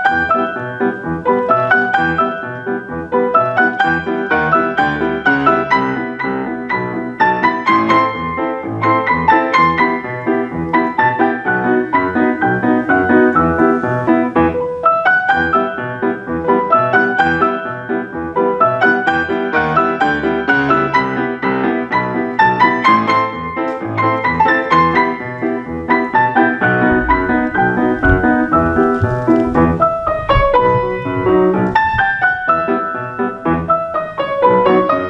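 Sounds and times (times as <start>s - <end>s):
grand piano quick notes: 0.0s - 35.0s.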